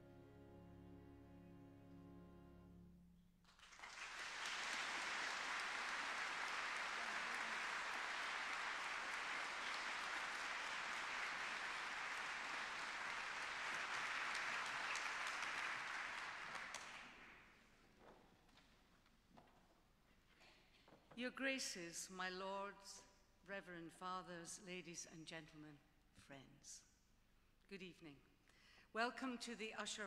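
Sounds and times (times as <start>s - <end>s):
audience applauding: 3.4s - 17.5s.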